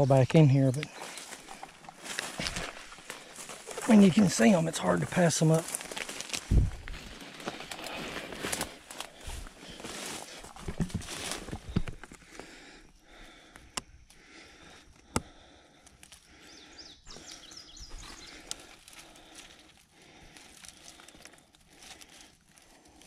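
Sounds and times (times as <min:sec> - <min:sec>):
brambles and dry grass rustling: 0:00.0 - 0:23.0
footsteps: 0:00.8 - 0:12.2.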